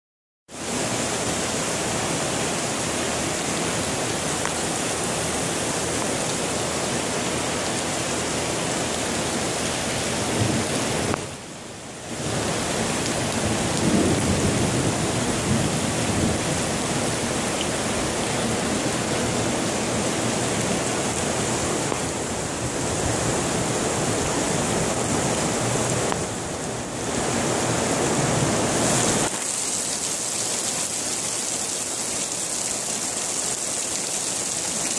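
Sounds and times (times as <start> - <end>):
heavy rain hissing: 0.5 - 34.9
water pouring from gantry: 29.3 - 34.9.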